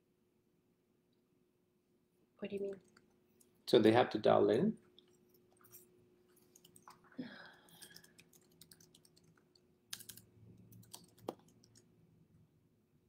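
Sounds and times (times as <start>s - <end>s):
faint steady hum: 0.0s - 13.0s
faint clicks and taps: 2.6s - 3.6s, 4.8s - 11.9s.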